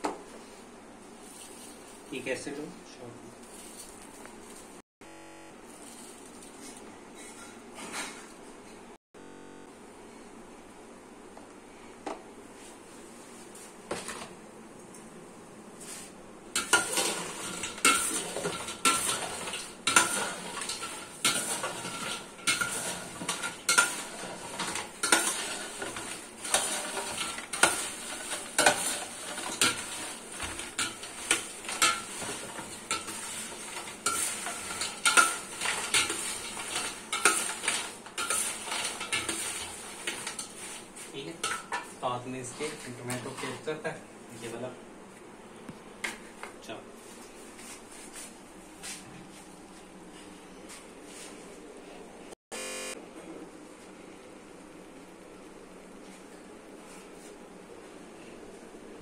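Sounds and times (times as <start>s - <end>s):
fries clattering in metal bowl: 16.6s - 43.8s.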